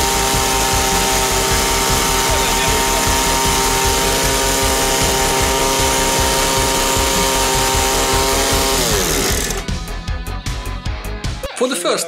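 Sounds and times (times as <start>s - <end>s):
vacuum hiss: 0.0s - 9.6s
small gasoline engine running: 0.0s - 9.9s.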